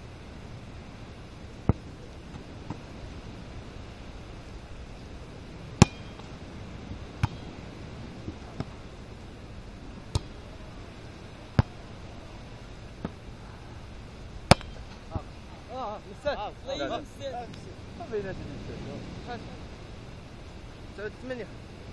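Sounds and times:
background hiss: 0:00.0 - 0:21.9
volleyball slaps: 0:05.8 - 0:06.3, 0:07.2 - 0:07.5, 0:10.1 - 0:10.4, 0:11.5 - 0:11.8, 0:14.5 - 0:15.2.

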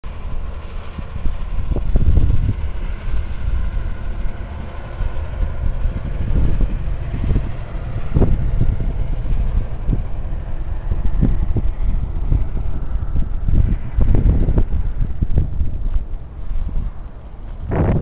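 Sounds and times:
distant highway traffic hum: 0:00.0 - 0:18.0
wind buffeting microphone: 0:00.0 - 0:18.0.

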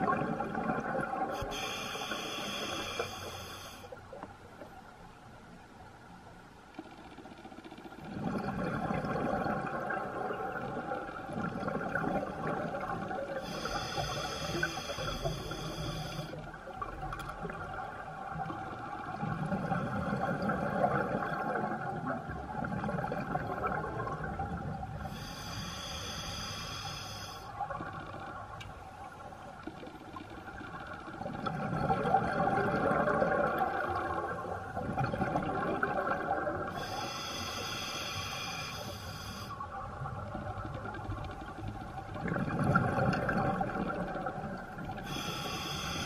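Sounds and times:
hissing regulator inhale: 0:01.4 - 0:04.0, 0:13.3 - 0:16.5, 0:25.0 - 0:27.6, 0:36.7 - 0:39.6, 0:45.0 - 0:46.0
rumbling exhaled bubbles: 0:08.1 - 0:13.2, 0:16.7 - 0:25.0, 0:31.2 - 0:36.7, 0:42.2 - 0:44.6.

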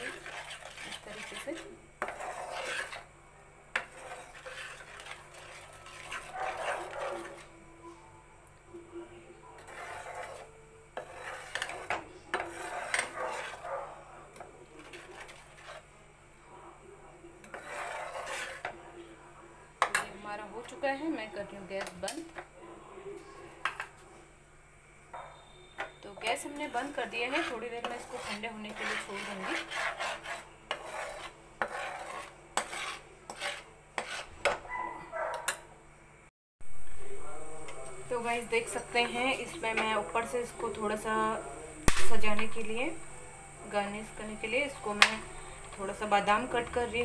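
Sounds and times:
spatula scraping a pan: 0:00.0 - 0:07.6, 0:09.5 - 0:16.0, 0:17.4 - 0:18.8, 0:19.8 - 0:21.2, 0:23.4 - 0:24.0, 0:25.4 - 0:34.6.

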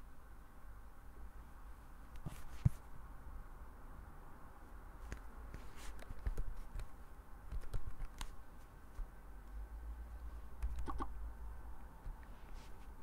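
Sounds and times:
low steady hum: 0:00.0 - 0:13.0
computer keys clicking: 0:07.5 - 0:08.3, 0:10.6 - 0:11.1.

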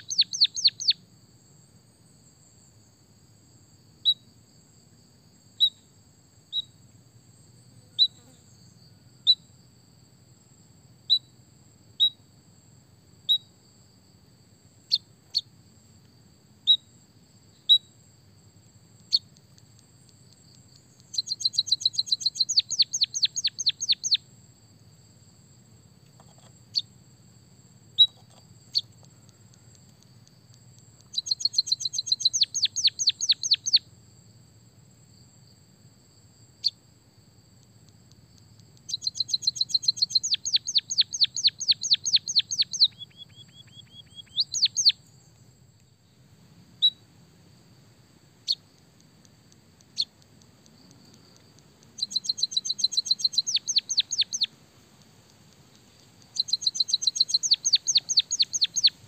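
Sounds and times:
bird chirps: 0:00.0 - 0:01.0, 0:05.6 - 0:05.9, 0:08.0 - 0:09.5, 0:11.1 - 0:11.3, 0:14.9 - 0:15.5, 0:19.0 - 0:19.4, 0:20.3 - 0:24.3, 0:28.0 - 0:30.0, 0:31.0 - 0:33.8, 0:38.8 - 0:45.4, 0:46.8 - 0:47.0, 0:48.4 - 0:48.7, 0:49.8 - 0:54.5, 0:55.9 - 0:59.0.

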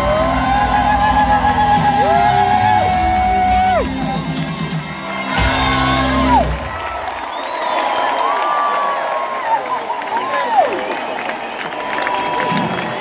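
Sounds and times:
bass: 0:00.0 - 0:06.9
rock band playing: 0:00.0 - 0:07.0
crowd whooping: 0:00.0 - 0:13.0.

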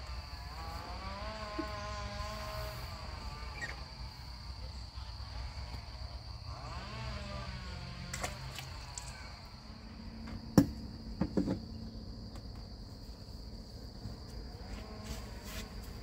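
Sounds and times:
high-pitched insect drone: 0:00.0 - 0:16.0
sharp knocks: 0:10.6 - 0:11.6.

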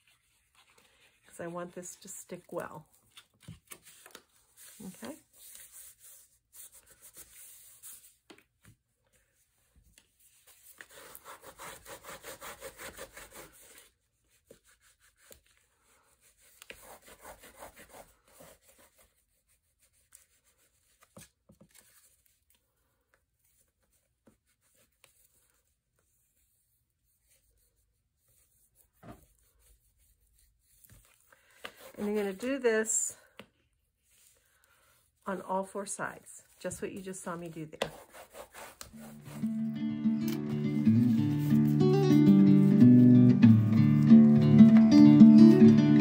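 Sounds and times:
hands rubbing paper: 0:00.0 - 0:08.4, 0:10.0 - 0:22.6, 0:23.4 - 0:33.0, 0:34.0 - 0:39.7, 0:40.3 - 0:42.8
paper rustling: 0:00.0 - 0:11.9, 0:20.1 - 0:22.7, 0:35.8 - 0:43.0.

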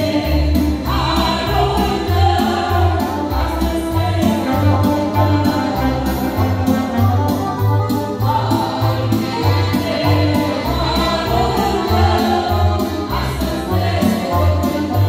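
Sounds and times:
women singing a hymn: 0:00.0 - 0:06.7, 0:08.2 - 0:15.0
accordion: 0:00.0 - 0:15.0
steady bass beat: 0:00.3 - 0:15.0
electronic keyboard: 0:00.8 - 0:15.0
woodwind: 0:04.2 - 0:08.3.

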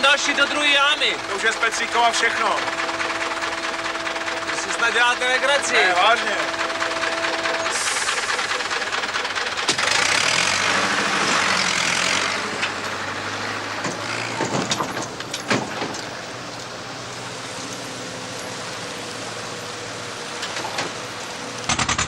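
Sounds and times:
loud hiss: 0:00.0 - 0:12.5
tractor engine running: 0:00.0 - 0:22.0.

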